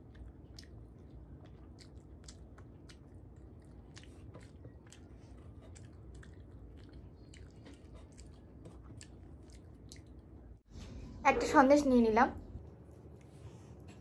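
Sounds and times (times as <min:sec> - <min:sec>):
person chewing with wet smacks: 0:00.0 - 0:10.6.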